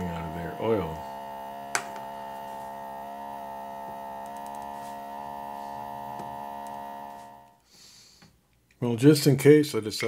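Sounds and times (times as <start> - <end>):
air pump humming: 0.0 - 7.6.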